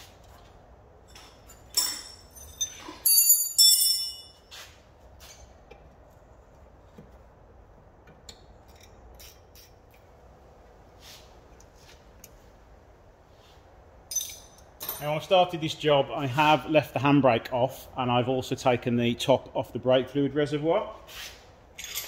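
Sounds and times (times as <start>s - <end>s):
spanner clinking on metal: 1.1s - 4.5s, 14.1s - 15.3s, 21.8s - 22.0s.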